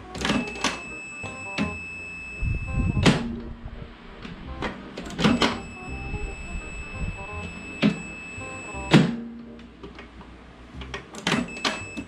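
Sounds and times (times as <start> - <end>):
faint background music: 0.0 - 12.0
multimeter continuity beep: 0.2 - 3.2, 5.2 - 9.0, 11.3 - 12.0.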